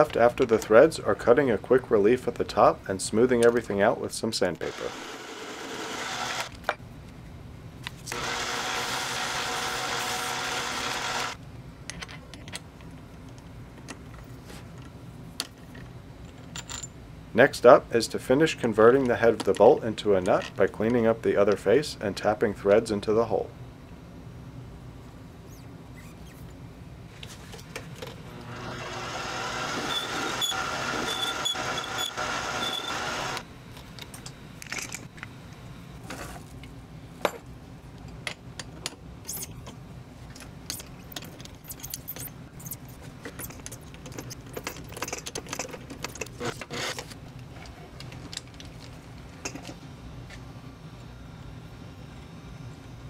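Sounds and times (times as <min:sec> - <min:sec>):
lathe motor whining: 0:04.6 - 0:06.5, 0:08.1 - 0:11.4, 0:28.3 - 0:33.4.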